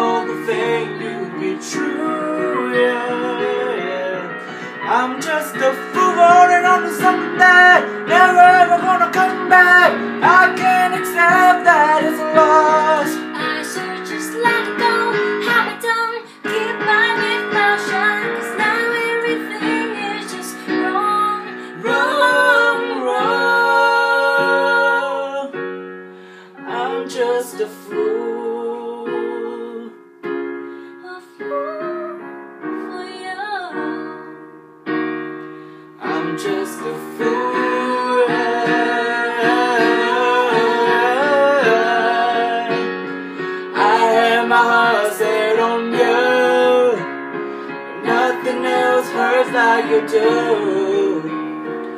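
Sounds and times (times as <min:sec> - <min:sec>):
man singing: 0:00.0 - 0:13.3, 0:36.0 - 0:43.1, 0:43.7 - 0:47.1, 0:48.0 - 0:51.4
electric keyboard piano: 0:00.0 - 0:51.9
woman singing: 0:10.6 - 0:24.6, 0:31.0 - 0:34.4.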